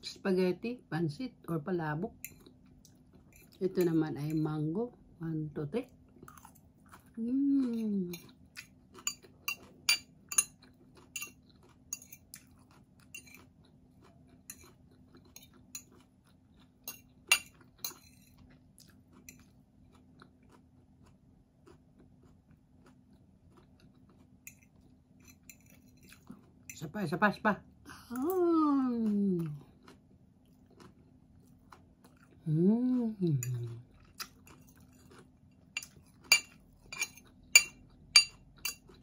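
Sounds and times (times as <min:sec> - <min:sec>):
crunchy chewing and mouth smacks: 0:05.9 - 0:26.8, 0:29.0 - 0:32.5, 0:33.4 - 0:39.0
fork clinking on plate: 0:16.9 - 0:18.3, 0:35.8 - 0:38.9.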